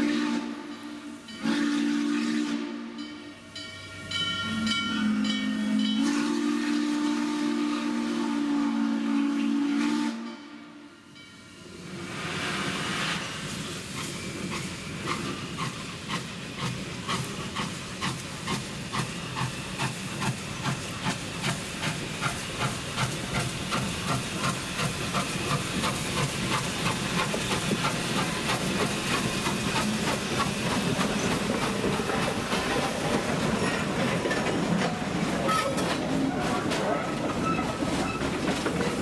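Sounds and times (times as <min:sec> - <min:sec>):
train passing with steady rush: 0:00.0 - 0:39.0
steam locomotive exhaust chuffs: 0:11.8 - 0:35.1.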